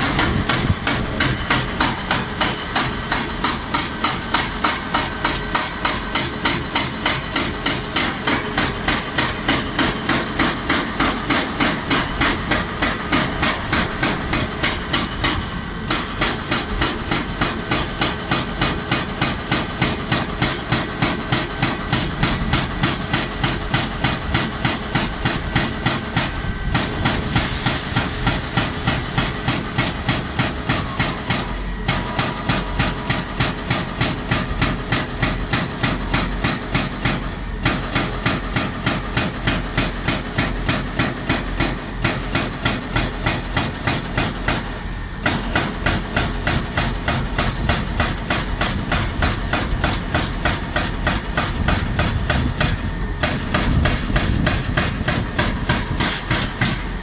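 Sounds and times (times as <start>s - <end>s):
diesel engine running: 0.0s - 39.1s
hydraulic breaker pounding rock: 0.0s - 57.0s.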